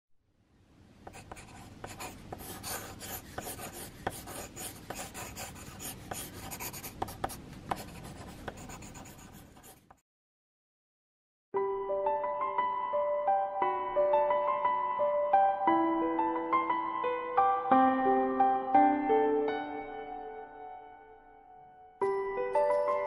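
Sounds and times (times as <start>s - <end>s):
pencil scratching on paper: 1.1s - 10.0s.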